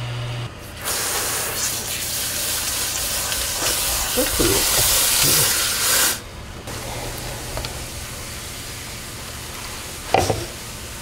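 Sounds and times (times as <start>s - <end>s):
tap water running into colander: 1.6s - 6.2s.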